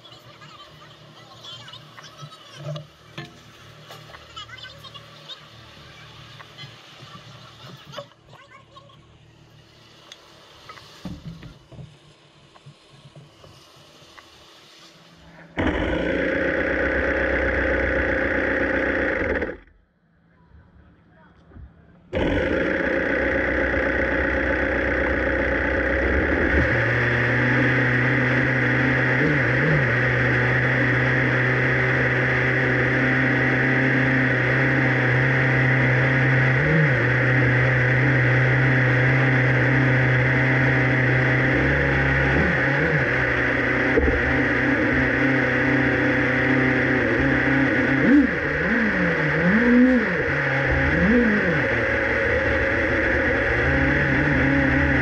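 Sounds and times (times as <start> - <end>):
race car engine idling and revving: 15.3 - 19.9, 22.0 - 55.0.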